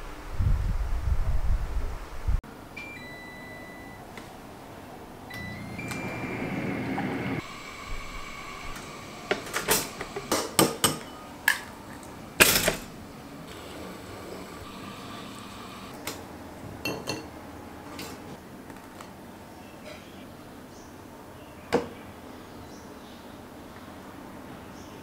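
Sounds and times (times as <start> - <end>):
short electronic tone: 5.3 - 8.6
hot water dispenser running: 5.3 - 16.1
toaster popping up: 8.7 - 11.6, 12.4 - 12.9.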